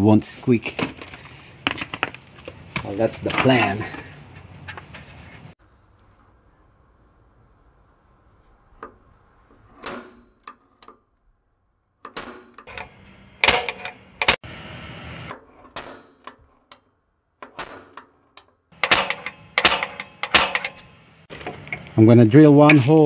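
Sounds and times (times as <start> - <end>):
clicks and knocks of hand tools: 12.6 - 14.4, 16.1 - 22.0
metal scrape: 12.6 - 16.8, 18.8 - 23.0.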